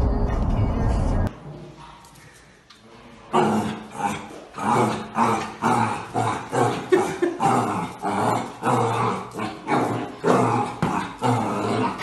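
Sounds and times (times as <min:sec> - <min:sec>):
puppy growling: 0:03.4 - 0:12.0.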